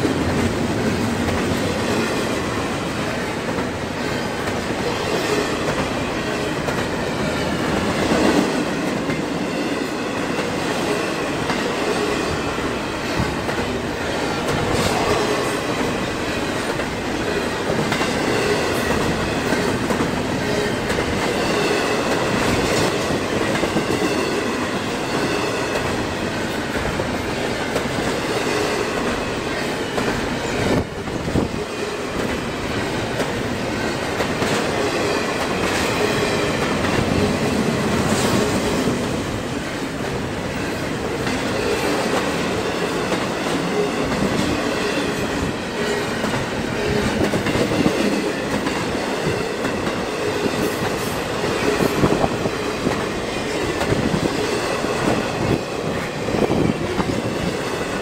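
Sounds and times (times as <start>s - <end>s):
clickety-clack over rail joints: 0.0s - 58.0s
train cars clanking: 0.0s - 58.0s
train wheels rumbling on rail: 0.0s - 58.0s.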